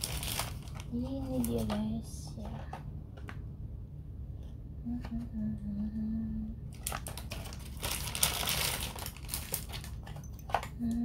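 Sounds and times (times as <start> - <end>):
packaging crinkling and rustling: 0.0 - 2.0, 6.7 - 10.7.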